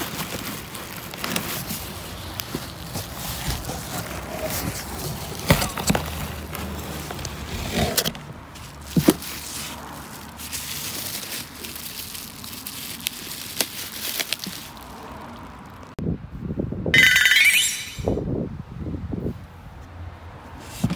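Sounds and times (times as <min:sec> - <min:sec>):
bubble wrap rustling and crinkling: 0:00.0 - 0:16.0.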